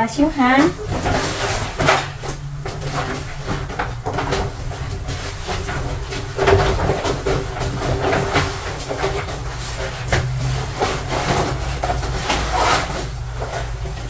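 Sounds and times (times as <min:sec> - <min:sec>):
low machine hum: 0:00.0 - 0:14.0
rustling: 0:00.3 - 0:14.0.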